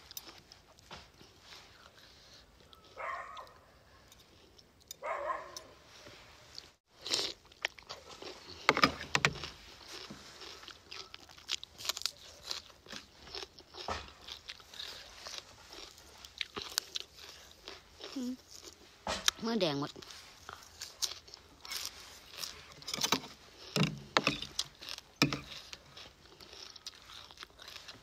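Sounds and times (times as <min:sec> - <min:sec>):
chewing: 0:00.0 - 0:28.0
crunching bites of food: 0:06.9 - 0:28.0.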